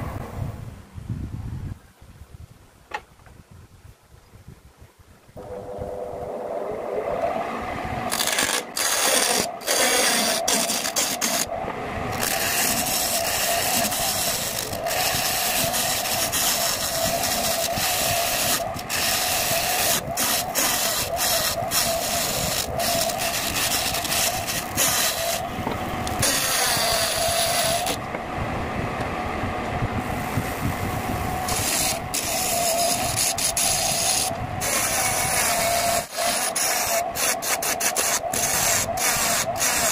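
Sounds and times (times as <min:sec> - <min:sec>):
wood lathe humming: 0:05.4 - 0:28.2, 0:30.2 - 0:39.9
gouge scraping wood: 0:08.1 - 0:11.5, 0:12.2 - 0:25.4, 0:26.1 - 0:28.0, 0:31.5 - 0:39.9.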